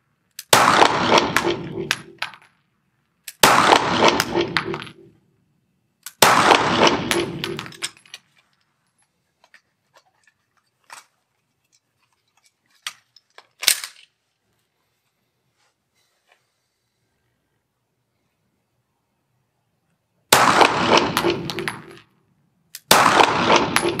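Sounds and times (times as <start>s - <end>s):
pistol shots with reverberation: 0.4s - 2.3s, 3.4s - 5.1s, 6.2s - 7.8s, 20.3s - 22.0s, 22.8s - 24.0s
pistol handling metallic clicks: 6.0s - 6.2s, 12.8s - 14.1s.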